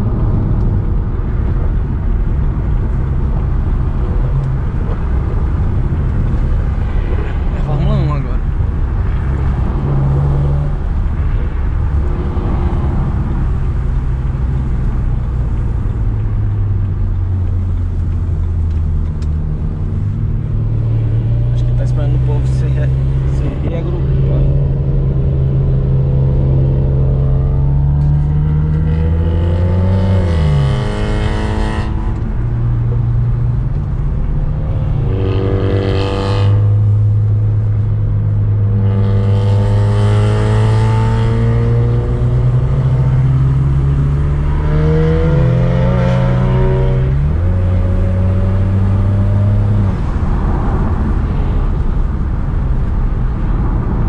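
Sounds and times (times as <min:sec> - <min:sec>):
car engine revving through gears: 0:20.6 - 0:32.2, 0:34.9 - 0:37.0, 0:38.7 - 0:50.1.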